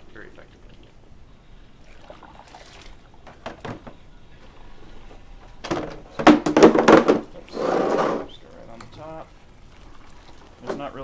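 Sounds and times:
water splashing and sloshing: 0:01.9 - 0:03.6.

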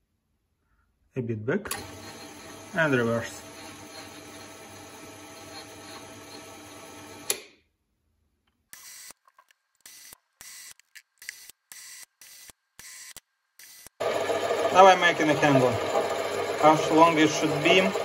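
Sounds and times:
metal lathe humming: 0:01.7 - 0:07.3, 0:14.0 - 0:18.0.

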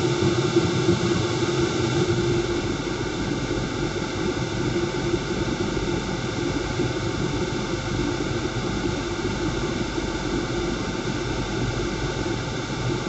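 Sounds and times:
fan rushing air: 0:00.0 - 0:13.0.

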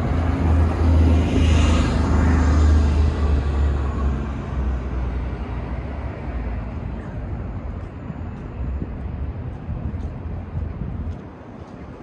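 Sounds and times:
city street rumble: 0:00.0 - 0:12.0.

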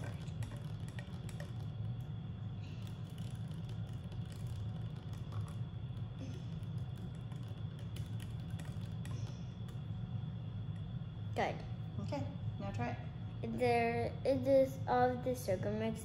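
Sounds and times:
straw ticking against plastic cup: 0:00.0 - 0:02.1, 0:02.8 - 0:09.8
steady low hum: 0:00.0 - 0:16.0.

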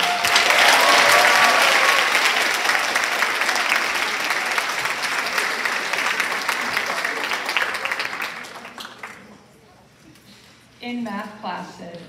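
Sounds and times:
audience clapping: 0:00.0 - 0:09.4.

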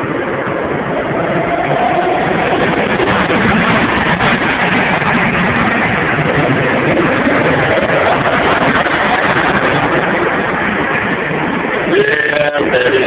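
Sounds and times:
go-kart engines running: 0:00.0 - 0:13.0.

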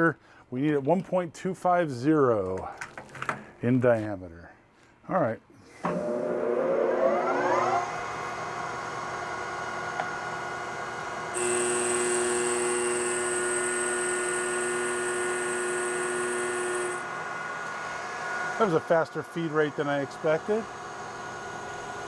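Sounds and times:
lathe spindle geared whine: 0:05.9 - 0:08.4, 0:11.3 - 0:22.0.

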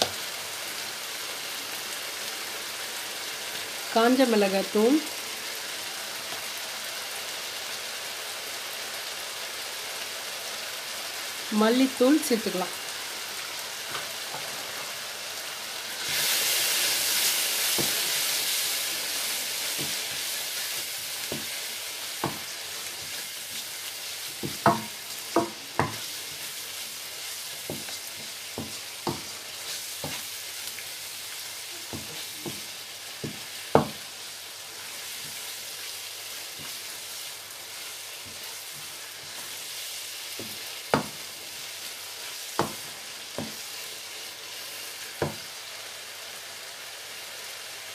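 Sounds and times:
masala sizzling in a wok: 0:00.0 - 0:47.9
spatula knocking on pan: 0:19.8 - 0:20.1, 0:22.2 - 0:22.5, 0:24.4 - 0:26.1, 0:27.6 - 0:29.3, 0:31.9 - 0:34.0, 0:40.4 - 0:41.2, 0:42.6 - 0:43.6.

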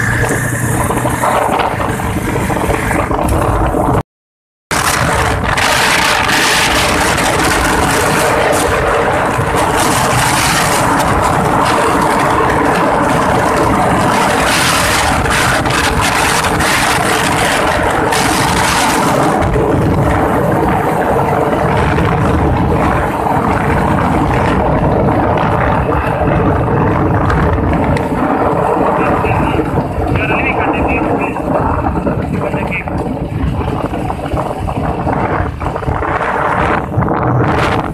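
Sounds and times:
air rushing and road noise: 0:00.0 - 0:04.0, 0:04.7 - 0:37.9
vehicle engine running: 0:00.0 - 0:04.0, 0:04.7 - 0:37.9.

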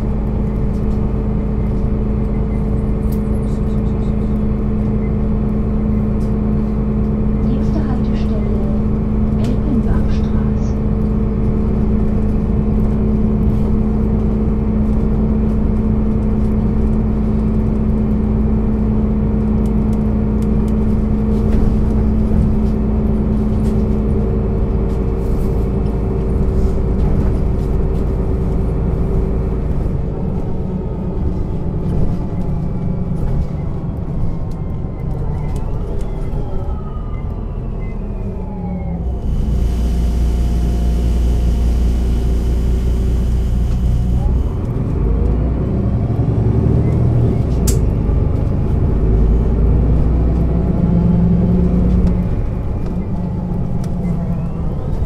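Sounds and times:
bus diesel engine drone: 0:00.0 - 0:55.0
tones falling in pitch: 0:39.2 - 0:44.6.

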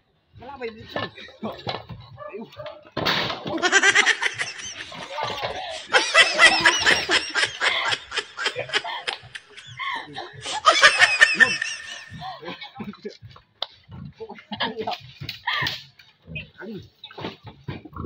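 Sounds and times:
young people laughing: 0:03.4 - 0:12.8.

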